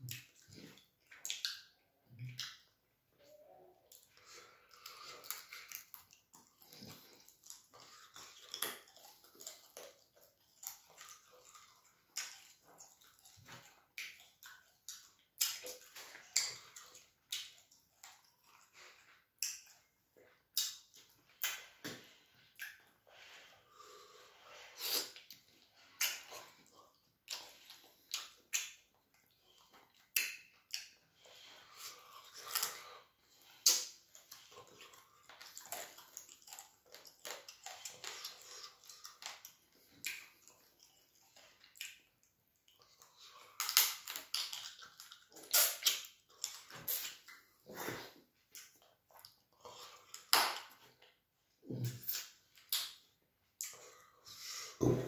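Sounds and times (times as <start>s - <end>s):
wet smacking and chewing: 0.0s - 2.8s, 3.4s - 55.0s.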